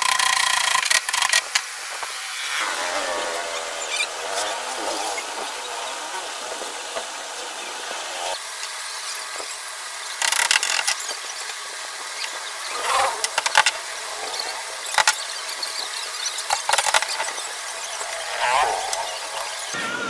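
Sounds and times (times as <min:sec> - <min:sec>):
wooden strips clicking and knocking: 0:10.2 - 0:11.3, 0:12.3 - 0:13.8, 0:14.9 - 0:15.2, 0:16.4 - 0:19.1.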